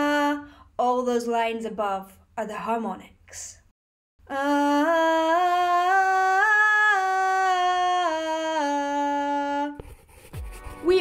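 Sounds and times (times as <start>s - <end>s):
woman singing a scale: 4.3s - 9.8s.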